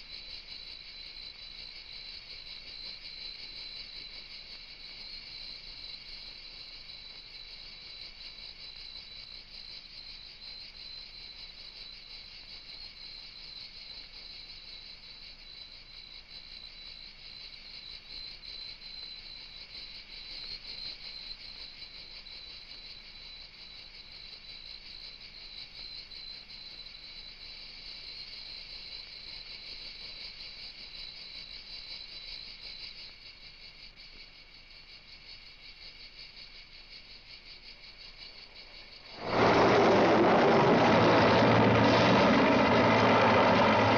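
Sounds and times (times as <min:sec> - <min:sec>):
insects chirring: 0:34.2 - 0:43.9.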